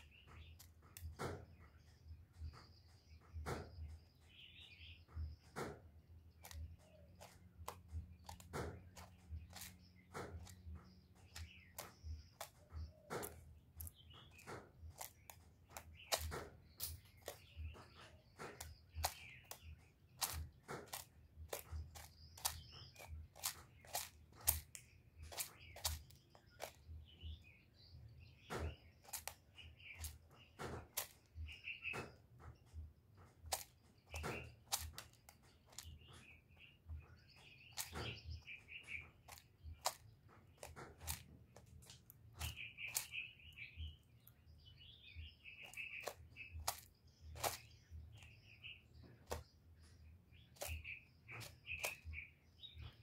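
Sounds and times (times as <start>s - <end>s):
small birds chirping: 0.0s - 53.0s
bird preening clicks and rustles: 37.4s - 43.3s.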